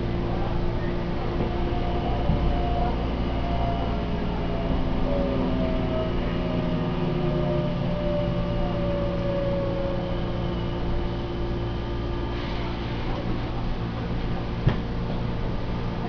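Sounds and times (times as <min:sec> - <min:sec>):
low train running rumble: 0:00.0 - 0:16.0
electric train motors whining: 0:01.2 - 0:11.6.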